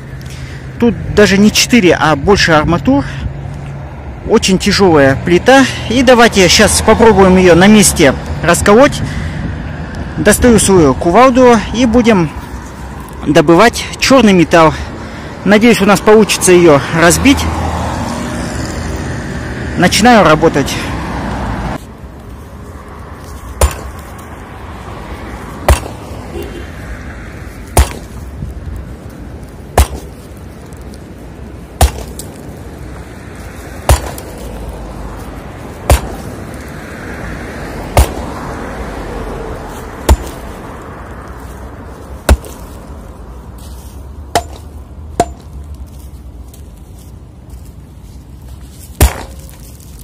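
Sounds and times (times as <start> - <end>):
sledgehammer striking concrete: 23.6 - 24.0, 25.6 - 26.1, 27.7 - 28.2, 29.8 - 30.2, 31.8 - 32.3, 33.8 - 34.4, 35.8 - 36.3, 37.9 - 38.3, 40.0 - 40.4, 42.3 - 42.6, 44.3 - 45.5, 49.0 - 49.5.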